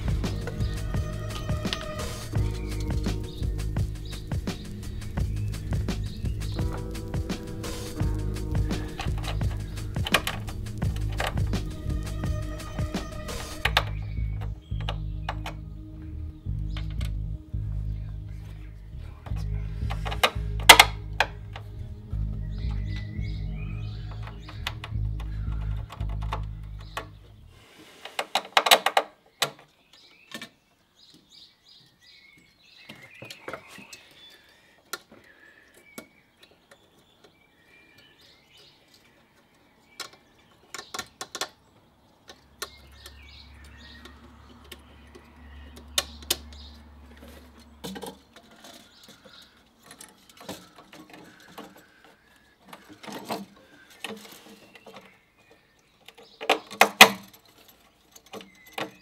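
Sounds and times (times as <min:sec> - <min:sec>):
low steady hum: 0:00.0 - 0:27.6
birds chirping: 0:00.0 - 0:59.0
clicks and rattles of metal parts: 0:06.0 - 0:15.6, 0:19.2 - 0:21.8, 0:23.9 - 0:27.3, 0:28.0 - 0:30.6, 0:38.0 - 0:59.0.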